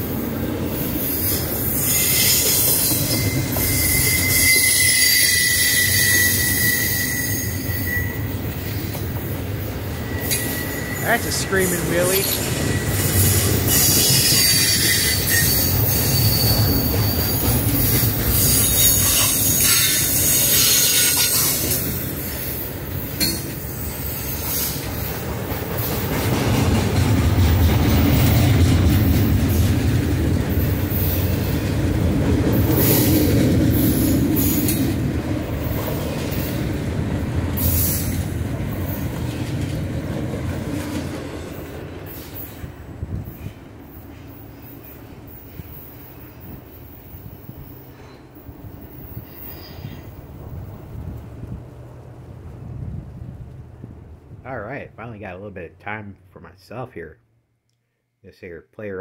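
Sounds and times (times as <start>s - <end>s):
freight cars rumbling over rails: 0.0s - 55.2s
screaming wheel squeal: 1.0s - 8.9s, 10.0s - 11.3s, 12.2s - 21.8s.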